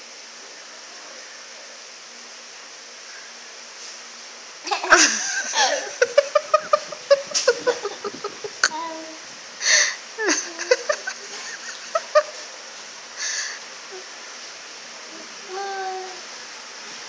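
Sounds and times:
toddler giggling: 4.6 - 9.2, 10.2 - 12.4.

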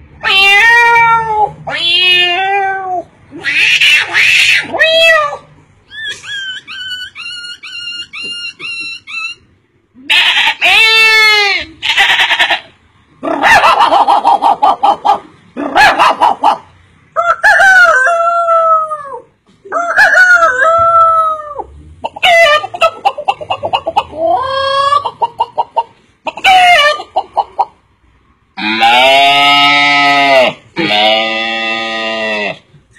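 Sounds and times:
man imitating chicken calls: 17.2 - 25.4.

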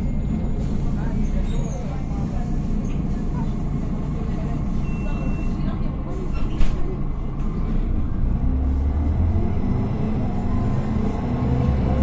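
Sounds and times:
bus diesel engine accelerating: 0.0 - 12.0.

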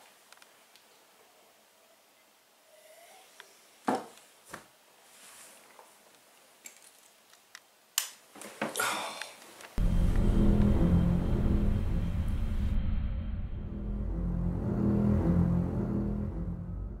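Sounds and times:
bedcovers rustling: 4.1 - 6.4.

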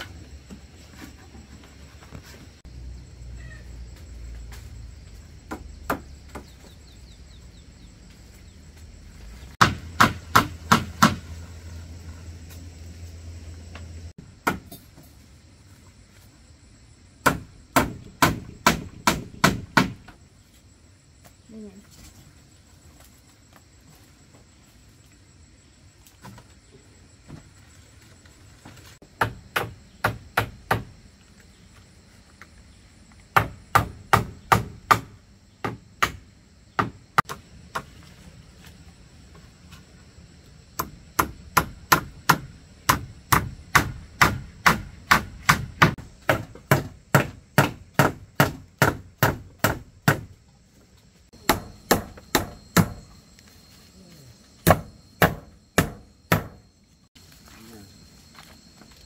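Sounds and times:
hand tool striking wood: 9.6 - 11.4, 17.2 - 20.2, 29.1 - 30.9, 33.3 - 36.2, 40.8 - 50.3, 51.4 - 53.1, 54.6 - 56.7.

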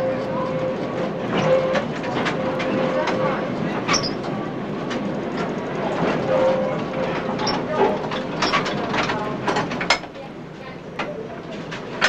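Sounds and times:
brief steady tone: 0.0 - 4.1, 6.2 - 7.6
tram rumbling along track: 0.0 - 12.0.

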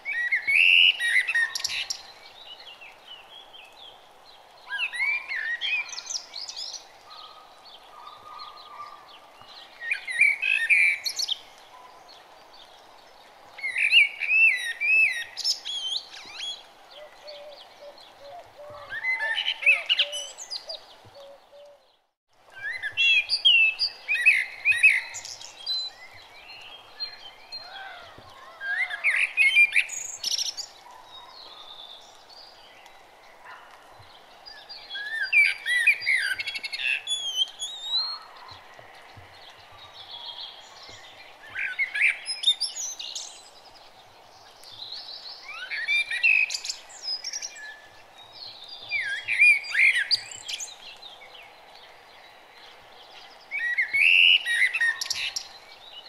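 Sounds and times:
birds warbling chirps: 0.0 - 56.0
steady low hiss: 31.7 - 56.0.

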